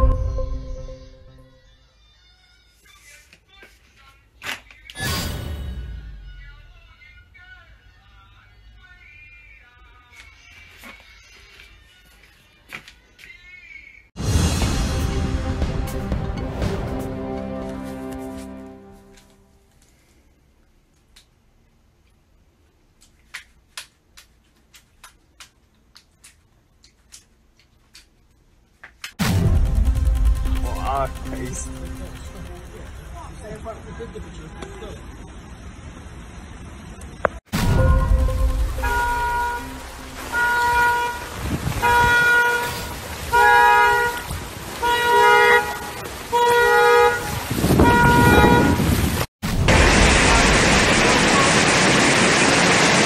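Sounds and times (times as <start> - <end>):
car horn blasts: 37.6 - 48.9.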